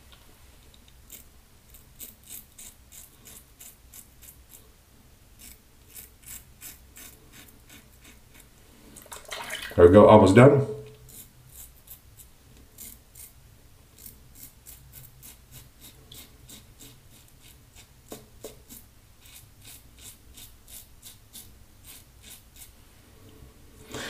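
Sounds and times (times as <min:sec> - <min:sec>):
razor scraping stubble: 0:01.0 - 0:04.6, 0:05.4 - 0:08.5, 0:11.0 - 0:13.4, 0:14.0 - 0:22.8.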